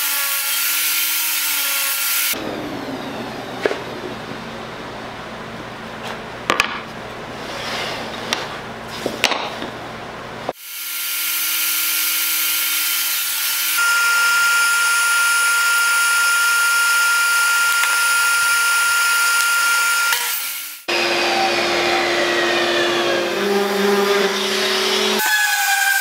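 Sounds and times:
shop machine motor whining: 0:02.3 - 0:05.9, 0:20.9 - 0:25.2.

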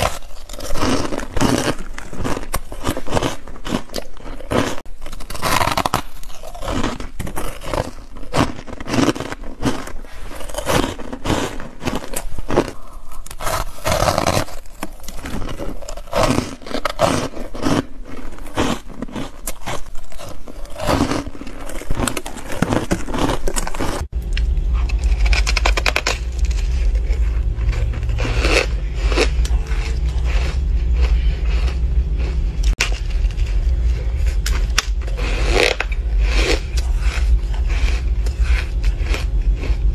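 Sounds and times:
teeth crunching ice: 0:00.0 - 0:39.9
low hum: 0:19.9 - 0:39.9.

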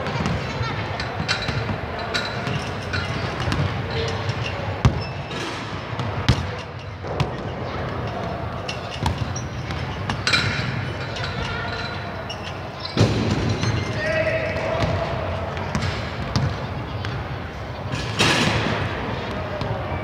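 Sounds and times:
echoing sports hall noise: 0:00.0 - 0:20.0
basketballs bouncing on wood floor: 0:06.0 - 0:07.4, 0:09.0 - 0:10.2, 0:14.7 - 0:17.3.

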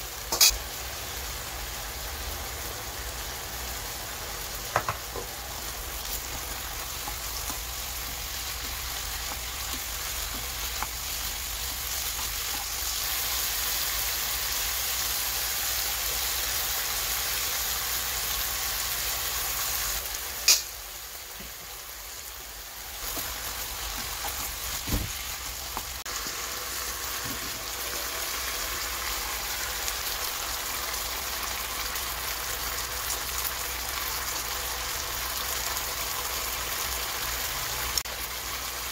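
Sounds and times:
meat sizzling in a frying pan: 0:00.0 - 0:38.9
spatula stirring: 0:05.5 - 0:12.9.

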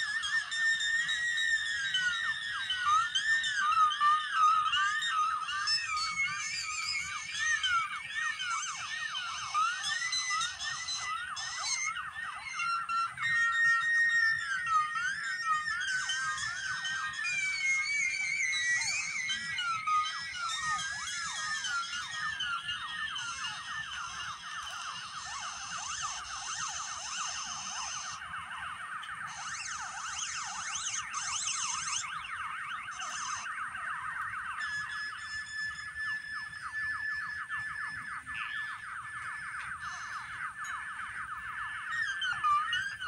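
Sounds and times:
electronic warbling pitch sweeps: 0:00.0 - 0:36.7
higher steady electronic tones: 0:16.0 - 0:35.6.

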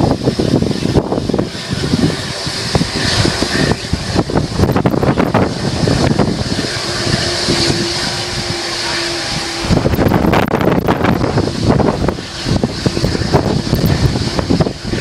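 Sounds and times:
jet engine roar: 0:00.0 - 0:15.0
steady hum: 0:00.0 - 0:15.0
wind gusting on microphone: 0:00.0 - 0:15.0.

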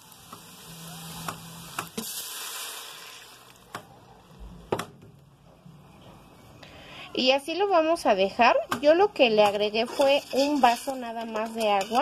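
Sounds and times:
water hissing in hot oil: 0:00.0 - 0:03.6.

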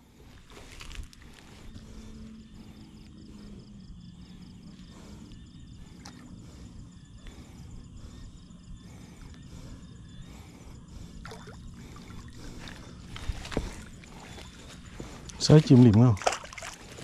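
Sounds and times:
water sloshing and trickling: 0:11.2 - 0:17.0
small water splashes: 0:15.4 - 0:17.0.

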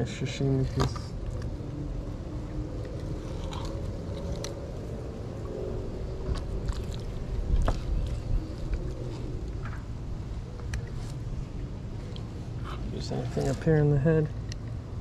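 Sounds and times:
low rumble: 0:00.0 - 0:13.8.

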